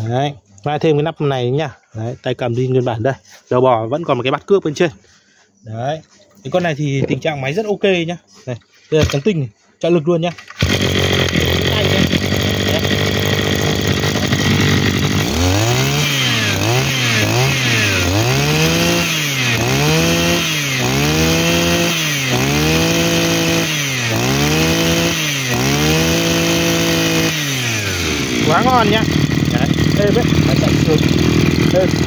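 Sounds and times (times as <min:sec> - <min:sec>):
brush cutter engine revving: 0:10.3 - 0:32.0.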